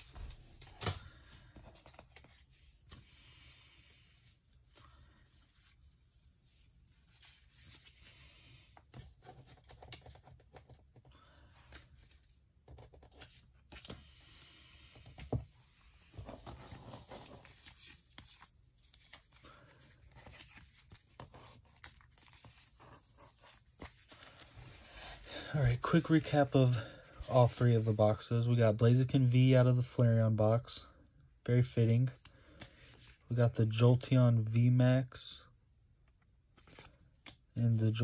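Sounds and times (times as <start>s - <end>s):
plastic sleeves rustling: 15.9s - 28.3s.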